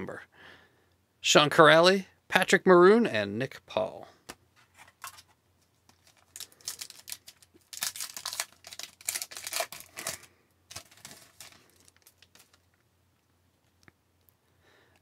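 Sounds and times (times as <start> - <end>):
foil wrapper crinkling and tearing: 5.9 - 12.8.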